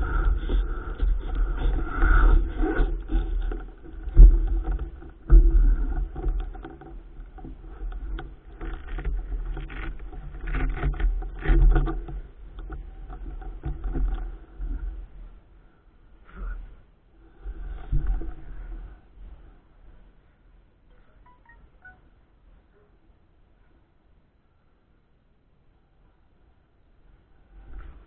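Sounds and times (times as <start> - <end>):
wind buffeting microphone: 0.0 - 14.3
bike rattling and knocking: 0.0 - 14.9.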